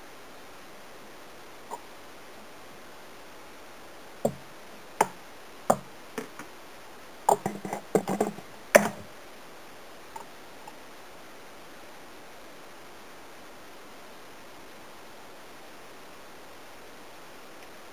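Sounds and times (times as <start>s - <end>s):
steady low hiss: 0.0s - 17.9s.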